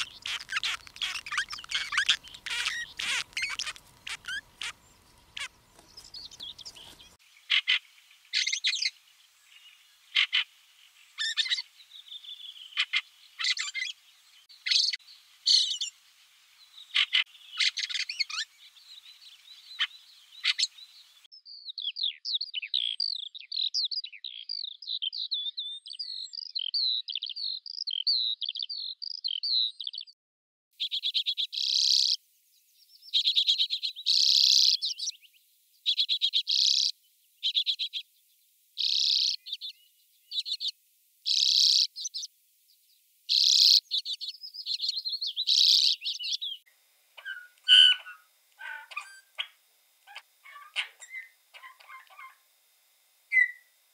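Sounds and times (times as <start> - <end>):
chattering bird warble: 0.0 - 9.0, 11.1 - 15.9, 16.8 - 21.2, 30.8 - 32.2, 33.0 - 35.2, 35.8 - 38.0, 38.8 - 42.3, 43.3 - 46.6, 47.2 - 52.4, 53.3 - 53.7
warbler short calls: 0.0 - 9.0, 10.1 - 10.5, 11.1 - 14.0, 14.6 - 15.9, 16.8 - 23.3, 30.8 - 32.2, 33.0 - 38.1, 38.8 - 42.3, 43.3 - 46.6, 47.2 - 52.4, 53.3 - 53.7
trilled bird calls: 0.0 - 10.5, 11.1 - 16.0, 16.8 - 21.3, 30.8 - 32.2, 33.0 - 38.1, 38.8 - 42.3, 43.3 - 46.6, 47.2 - 52.4, 53.3 - 53.7.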